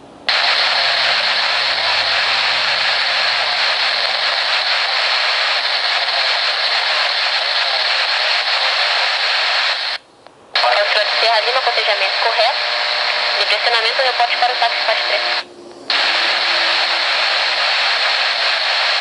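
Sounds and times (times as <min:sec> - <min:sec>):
radio scanner hiss: 0:00.3 - 0:10.0, 0:10.6 - 0:19.0.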